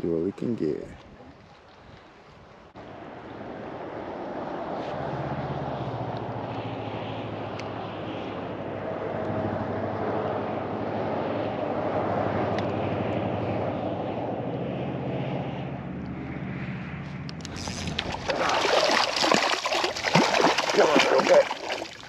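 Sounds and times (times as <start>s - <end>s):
wind: 0.0s - 22.0s
engine droning: 2.8s - 22.0s
water noise: 17.3s - 22.0s.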